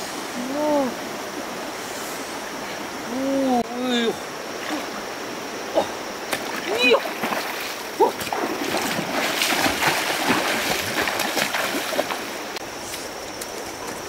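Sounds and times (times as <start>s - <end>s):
axe slapping into water: 6.3s - 12.2s
people running through water: 6.3s - 12.3s.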